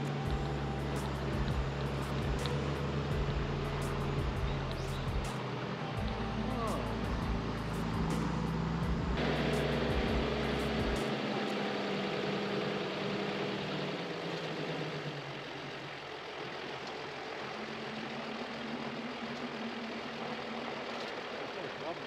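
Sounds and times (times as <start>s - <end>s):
road and wind noise: 0.0s - 22.0s
vehicle engine running: 0.0s - 22.0s.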